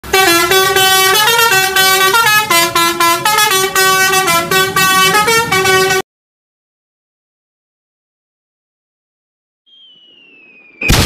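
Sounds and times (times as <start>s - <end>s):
musical vehicle horn playing a tune: 0.0s - 6.1s.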